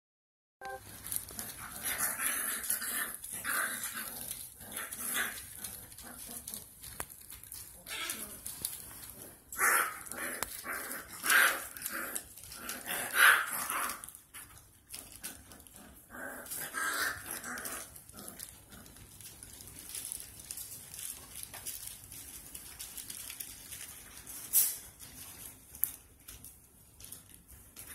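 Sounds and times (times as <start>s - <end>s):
puppies barking and yipping: 0.6s - 21.6s.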